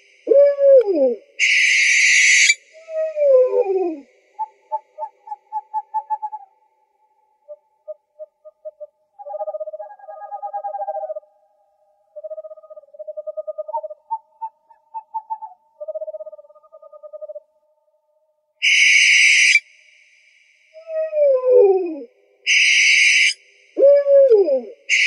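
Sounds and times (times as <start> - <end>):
owl calls: 0.0 - 6.5, 7.5 - 11.2, 12.2 - 17.4, 18.6 - 19.6, 20.8 - 25.0.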